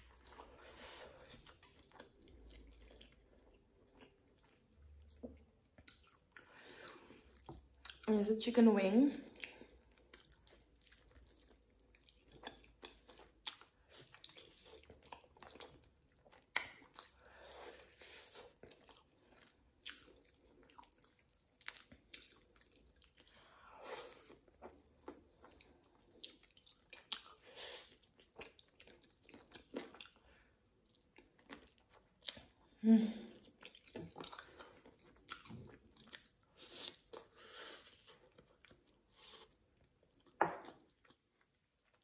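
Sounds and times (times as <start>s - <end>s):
person chewing and biting food: 9.4s - 23.4s, 24.0s - 30.2s, 33.4s - 42.0s
wet mouth clicks and smacks: 16.5s - 17.1s.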